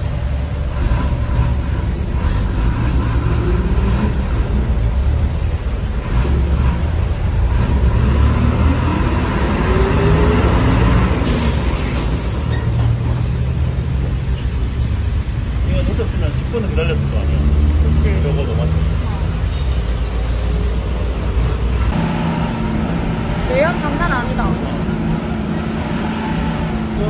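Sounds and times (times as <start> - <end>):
bus engine rumbling: 0.0 - 27.0
air brakes hissing: 11.2 - 13.3.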